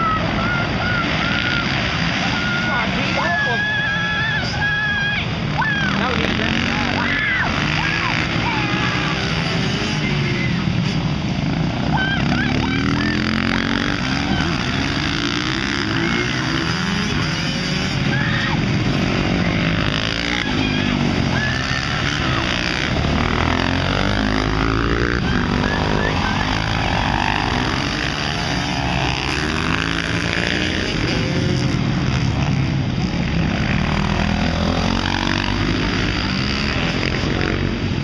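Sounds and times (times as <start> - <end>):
motorcycle engines revving: 0.0 - 38.0.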